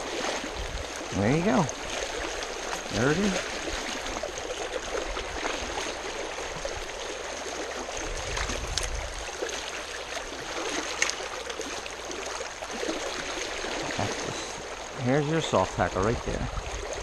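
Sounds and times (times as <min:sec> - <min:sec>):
river rushing: 0:00.0 - 0:17.0.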